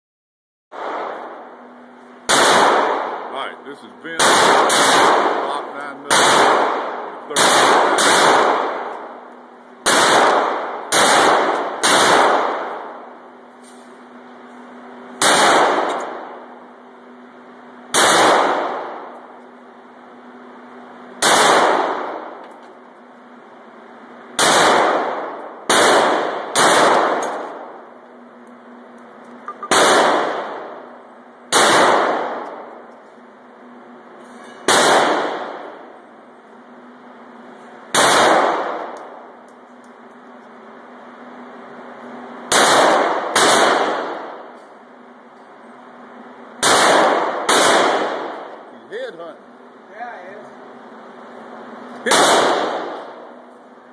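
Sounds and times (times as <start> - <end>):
handgun shots indoors: 2.2 - 3.2, 4.1 - 5.5, 6.1 - 9.2, 9.8 - 13.0, 15.2 - 16.5, 17.9 - 19.2, 21.2 - 22.5, 24.4 - 27.8, 29.5 - 30.9, 31.5 - 32.9, 34.5 - 35.9, 37.9 - 40.0, 42.5 - 44.7, 46.6 - 48.5, 52.0 - 53.3.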